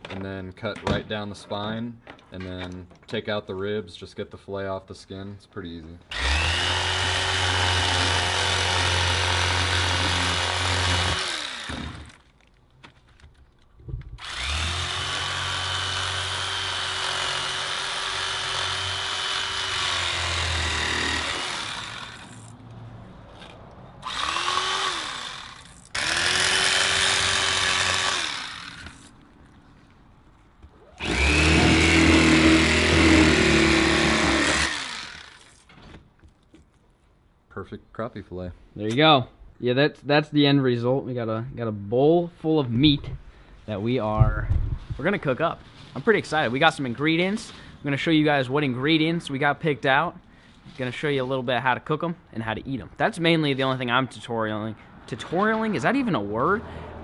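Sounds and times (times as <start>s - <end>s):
electric knife motor whine: 6.1s - 12.2s, 14.2s - 22.6s, 24.0s - 29.2s, 30.9s - 35.6s.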